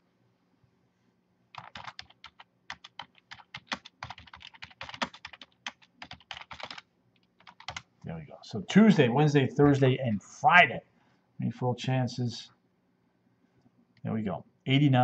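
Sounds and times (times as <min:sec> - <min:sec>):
computer keyboard typing: 0:01.5 - 0:07.9.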